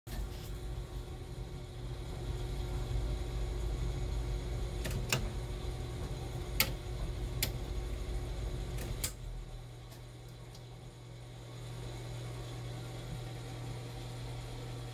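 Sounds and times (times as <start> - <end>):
faint steady whine: 0.1 - 14.9
low electrical hum: 0.1 - 14.9.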